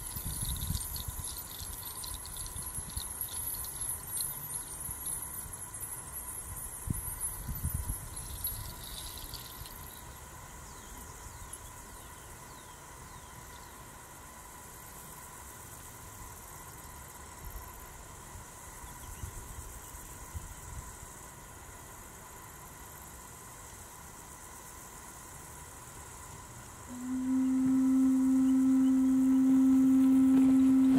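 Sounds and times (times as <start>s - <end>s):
bundle rattle shaken: 0.0s - 5.6s, 6.9s - 10.0s.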